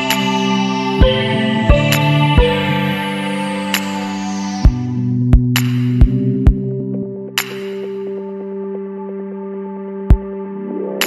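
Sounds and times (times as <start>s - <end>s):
electronic chords: 0.0s - 7.3s.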